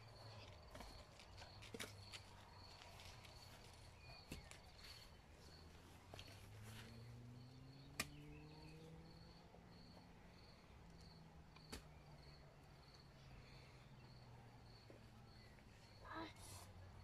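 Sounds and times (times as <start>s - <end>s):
faint insect chirping: 0.0s - 17.0s
garden hoe striking soil: 7.9s - 8.2s.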